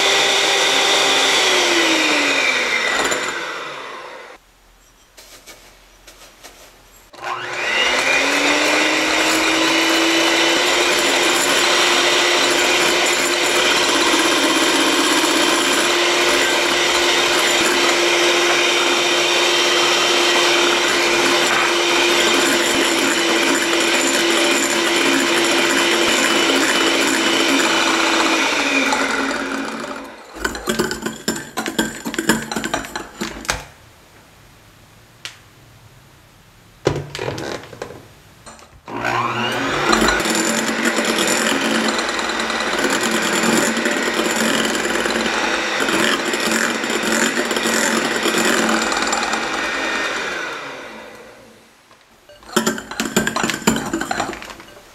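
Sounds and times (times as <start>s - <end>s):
electric hand mixer whirring: 0.0s - 4.4s, 7.2s - 33.2s, 38.9s - 51.6s, 52.4s - 54.8s
knocks and rattles: 8.2s - 33.8s, 39.6s - 49.7s, 52.3s - 54.9s.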